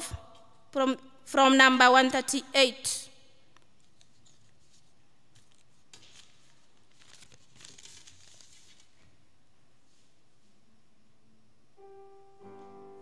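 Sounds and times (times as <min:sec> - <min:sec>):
rustling handling noises: 0:03.6 - 0:09.1.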